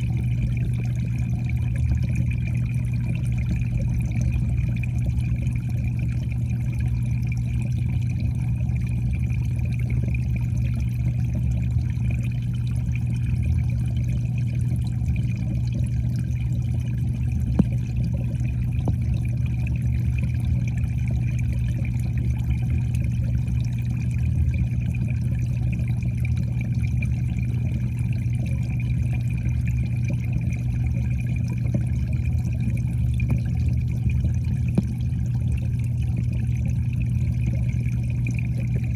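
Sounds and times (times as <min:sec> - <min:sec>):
underwater hum and water noise: 0:00.0 - 0:38.9
faint tick: 0:17.5 - 0:17.8, 0:34.7 - 0:34.9.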